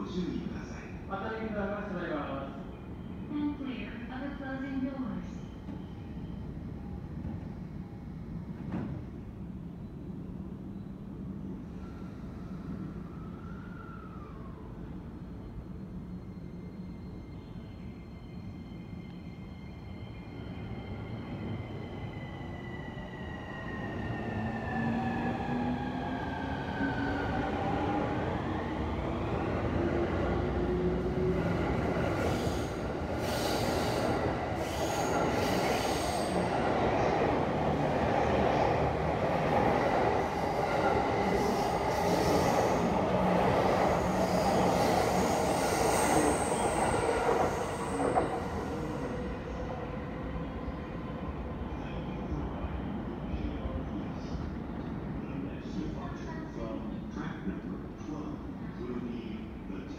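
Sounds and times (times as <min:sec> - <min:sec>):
train wheels rumbling on rail: 0:08.5 - 0:09.3, 0:24.1 - 0:49.7
faint high wheel squeal: 0:15.2 - 0:20.9.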